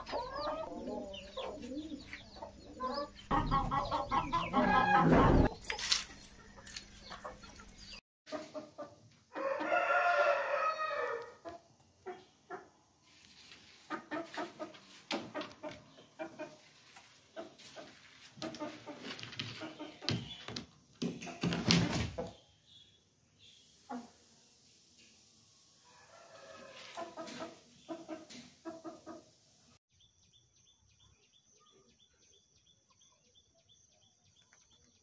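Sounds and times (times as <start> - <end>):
chicken clucking: 0.0 - 20.5, 26.0 - 29.4
rooster crowing: 9.3 - 11.4, 25.9 - 27.0.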